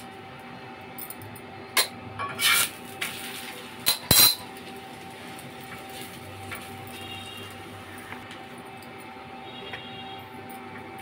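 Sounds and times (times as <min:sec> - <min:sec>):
faint hum: 0:00.0 - 0:11.0
metal utensils clattering: 0:01.8 - 0:07.4.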